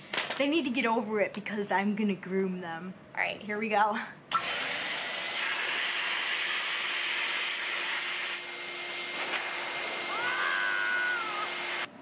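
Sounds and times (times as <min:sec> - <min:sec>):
dog dryer blowing air: 0:04.3 - 0:11.9.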